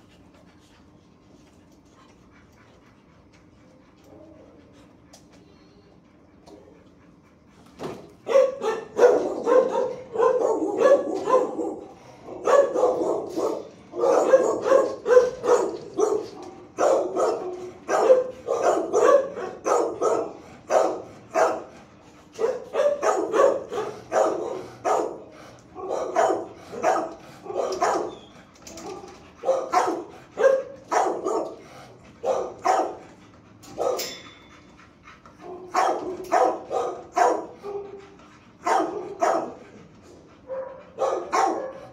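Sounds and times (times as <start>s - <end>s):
dog barking: 8.2s - 21.7s, 22.4s - 28.2s, 28.8s - 31.6s, 32.2s - 33.0s, 33.7s - 34.2s, 35.4s - 38.0s, 38.6s - 39.6s, 40.5s - 41.9s.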